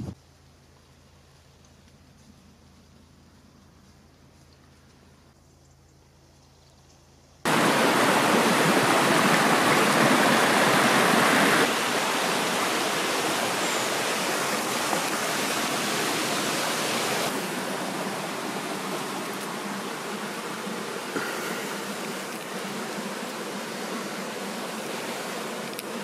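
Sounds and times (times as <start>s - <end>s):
rushing water: 7.5s - 26.0s.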